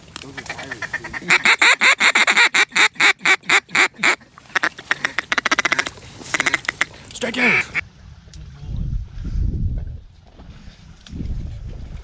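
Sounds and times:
duck call chatter: 0:00.3 - 0:07.8
duck call notes: 0:00.4 - 0:07.8.

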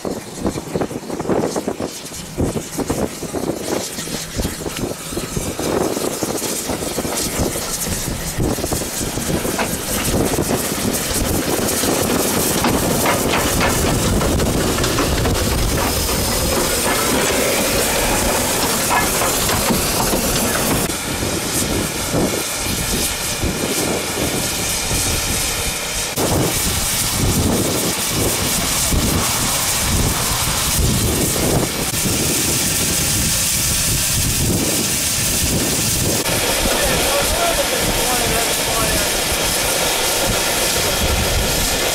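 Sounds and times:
steam hissing: 0:00.0 - 0:41.9
uneven low rumbles: 0:01.7 - 0:25.4.

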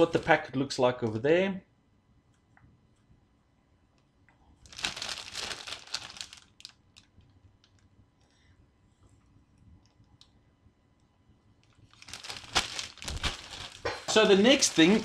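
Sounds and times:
plastic bag crinkling: 0:04.6 - 0:07.8, 0:11.7 - 0:15.0.

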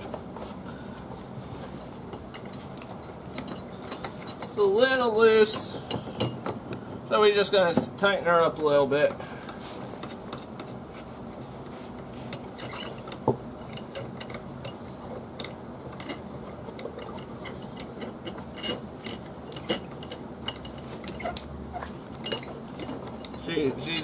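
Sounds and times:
low steady hum: 0:00.0 - 0:24.0
light metallic clicks and scrapes: 0:09.5 - 0:24.0.

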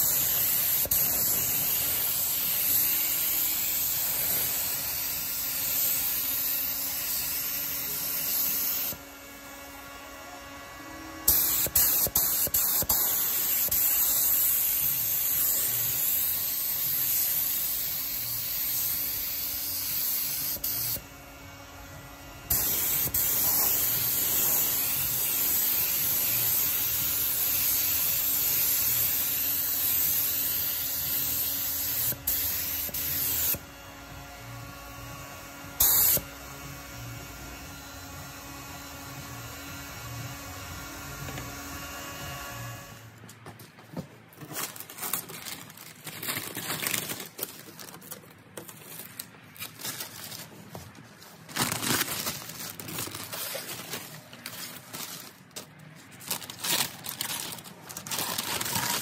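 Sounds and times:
paint spray gun hissing: 0:00.0 - 0:05.1, 0:22.5 - 0:26.8.

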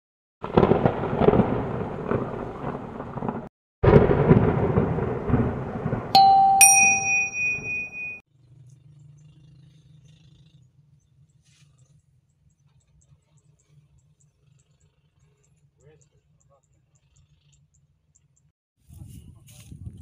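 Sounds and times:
thunder crash rumbling: 0:00.4 - 0:06.6
notification chime dings: 0:06.2 - 0:08.2.

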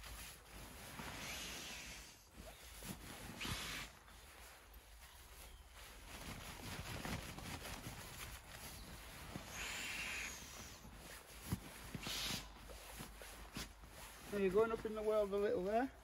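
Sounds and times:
swishing rustle: 0:00.0 - 0:15.7.

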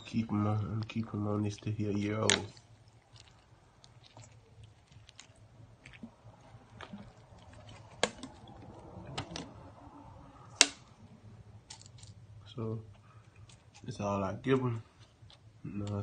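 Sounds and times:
water pouring onto kibble: 0:00.3 - 0:09.4.

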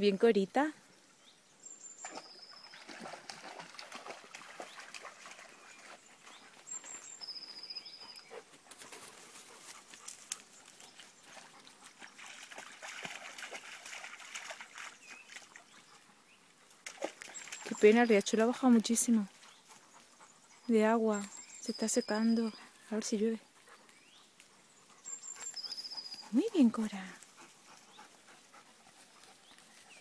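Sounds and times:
dog splashing in water: 0:02.0 - 0:06.8, 0:12.0 - 0:15.8, 0:16.8 - 0:18.1.

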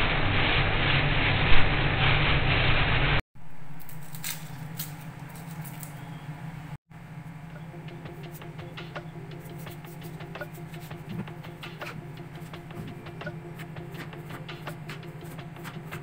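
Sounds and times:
plastic bag rustling: 0:03.4 - 0:06.1
steady low hum: 0:03.4 - 0:16.0
knife scraping while peeling: 0:03.6 - 0:06.2, 0:09.3 - 0:16.0.

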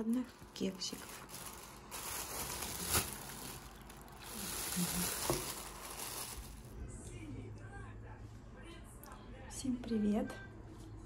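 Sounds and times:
plastic bag crinkling: 0:00.0 - 0:06.8.

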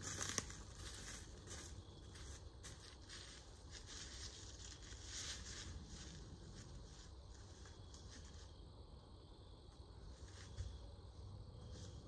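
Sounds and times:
footsteps in dry leaves: 0:00.0 - 0:08.6.

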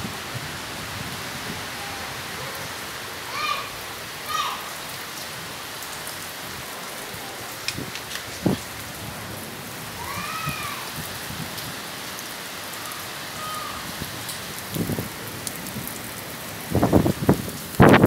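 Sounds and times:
heavy rain falling: 0:00.0 - 0:18.0
wind buffeting microphone: 0:07.4 - 0:11.9, 0:13.8 - 0:18.0.

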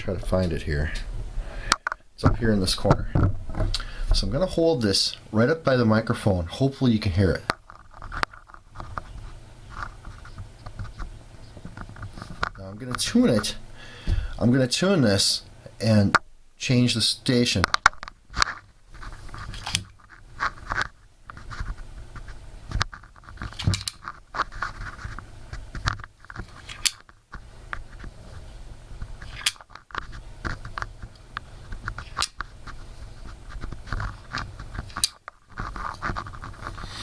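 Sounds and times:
earbud scratching on microphone: 0:35.5 - 0:37.0.

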